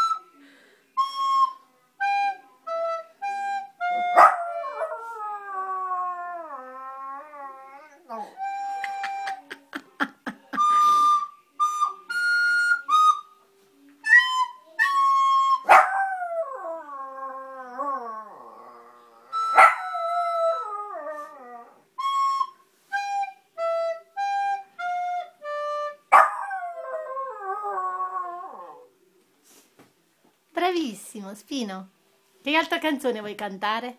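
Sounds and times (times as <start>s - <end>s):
simple melody of held notes: 0.0s - 5.0s, 10.6s - 15.7s, 22.0s - 26.1s.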